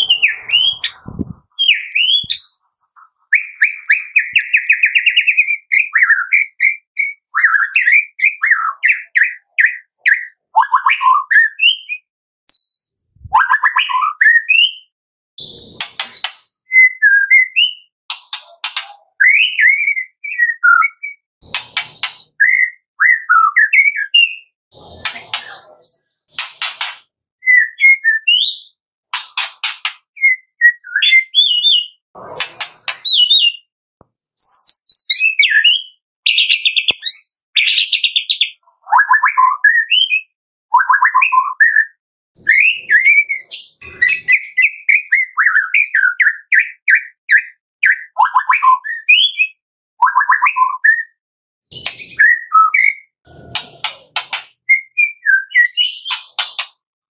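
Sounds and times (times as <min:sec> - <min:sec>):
bird singing whistles and trills: 0:00.0 - 0:02.6, 0:03.3 - 0:17.9, 0:19.0 - 0:21.2, 0:22.0 - 0:26.1, 0:27.4 - 0:28.8, 0:30.0 - 0:33.7, 0:34.4 - 0:53.1, 0:54.6 - 0:56.8
harsh rattling bird calls: 0:00.0 - 0:02.6, 0:21.4 - 0:22.7, 0:23.3 - 0:27.1, 0:28.3 - 0:30.1, 0:31.0 - 0:33.6, 0:42.4 - 0:46.3, 0:51.7 - 0:56.8.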